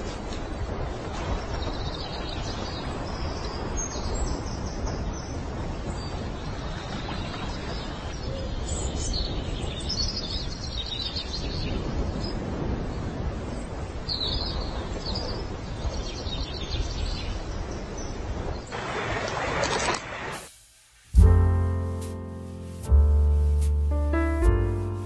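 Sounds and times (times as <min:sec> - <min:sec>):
steady low noise: 0:20.4 - 0:25.0.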